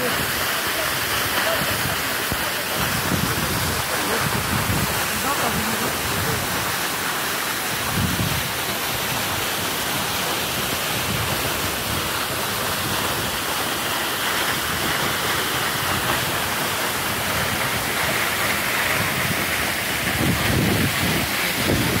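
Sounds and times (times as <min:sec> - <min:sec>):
waterfall rushing: 0:00.0 - 0:22.0
wind rumble on microphone: 0:02.8 - 0:06.6, 0:07.8 - 0:08.6, 0:18.9 - 0:22.0.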